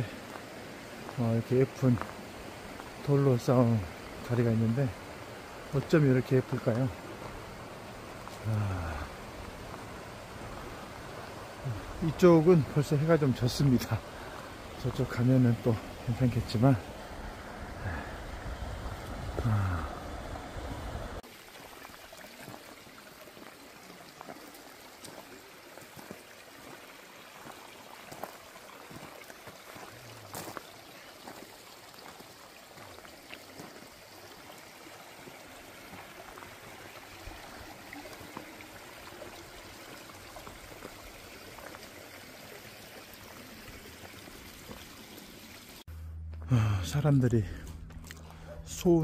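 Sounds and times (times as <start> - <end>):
stream running over rocks: 0.0 - 45.9
footsteps on gravel: 29.7 - 31.4, 47.5 - 48.5
low rumble: 45.9 - 48.8.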